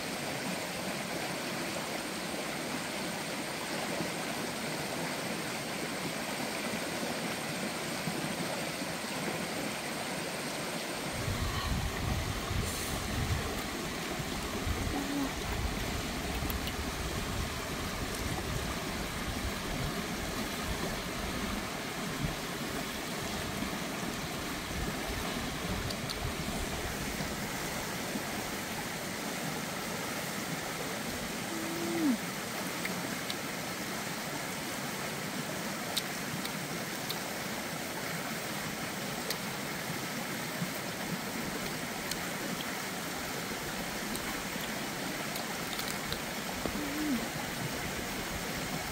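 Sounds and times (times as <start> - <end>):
steady rushing noise: 11.0 - 14.9.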